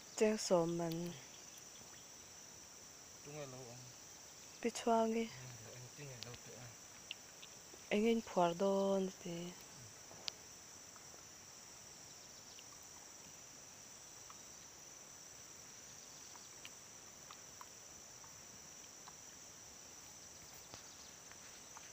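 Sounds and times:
high-pitched insect chorus: 0:00.0 - 0:21.9
faint clicks: 0:06.2 - 0:07.6.

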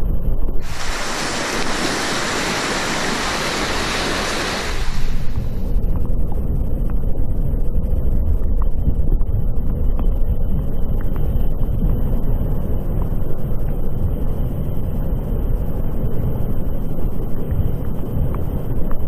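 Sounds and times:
churning water hissing: 0:00.6 - 0:05.8
muffled river rumble: 0:00.6 - 0:14.8.

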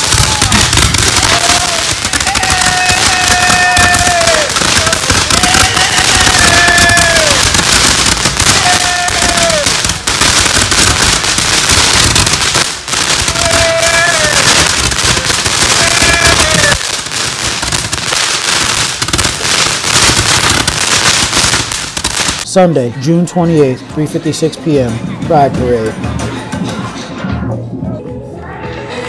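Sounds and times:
people shouting: 0:00.0 - 0:21.4
fireworks crackling hiss: 0:00.0 - 0:22.5.

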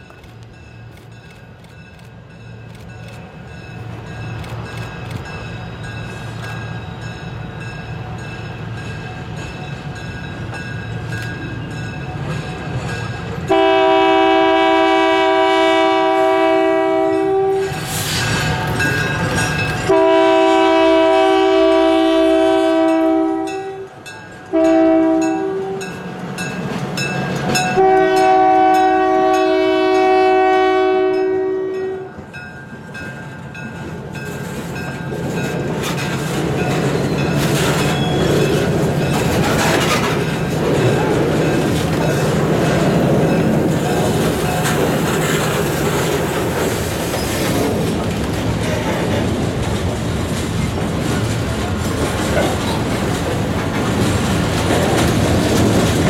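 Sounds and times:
train rumbling: 0:00.0 - 0:56.0
locomotive air horn: 0:13.5 - 0:17.9, 0:19.9 - 0:26.0, 0:27.7 - 0:32.2.

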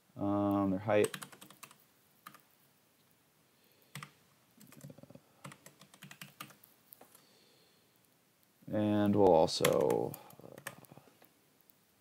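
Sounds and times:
faint keyboard typing: 0:00.3 - 0:02.6, 0:03.8 - 0:07.3, 0:09.0 - 0:11.8.

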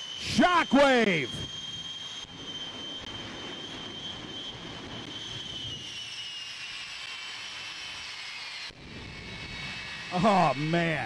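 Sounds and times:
high turbine whine: 0:00.0 - 0:11.0
jet engines roaring: 0:00.0 - 0:11.0.

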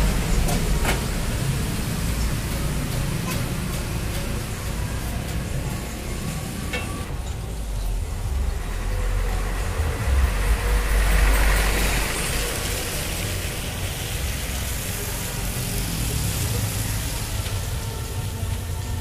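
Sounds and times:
road traffic rumble: 0:00.0 - 0:19.0
vehicle passing close by: 0:08.0 - 0:17.4.

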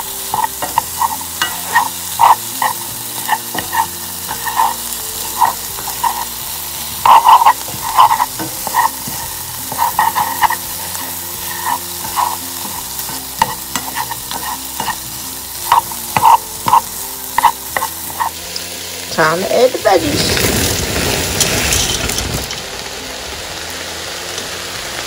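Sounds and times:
spatula scraping a pan: 0:00.0 - 0:18.6
chicken sizzling in a frying pan: 0:00.0 - 0:25.0.

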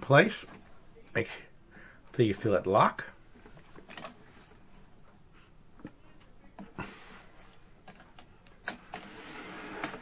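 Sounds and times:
plastic parts clicking and tapping: 0:03.7 - 0:04.2.

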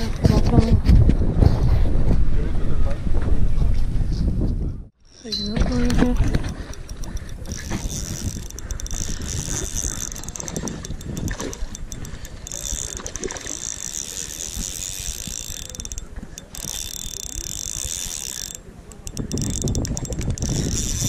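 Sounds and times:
wind rumble on microphone: 0:00.0 - 0:13.5, 0:19.0 - 0:21.0
fishing reel clicking whir: 0:05.0 - 0:21.0.

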